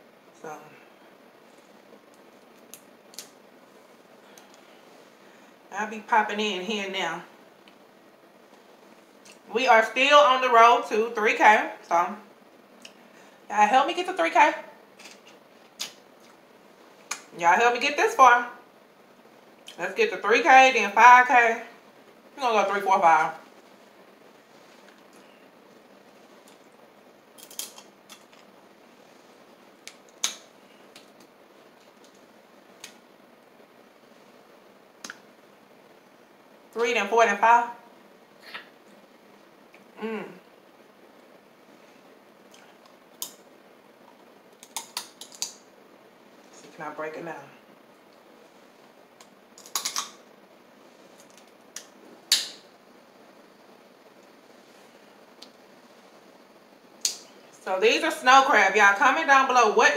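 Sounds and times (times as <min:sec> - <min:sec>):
crab shell cracking: 0:27.4 - 0:28.5, 0:29.8 - 0:31.3, 0:44.6 - 0:45.6, 0:49.2 - 0:50.2.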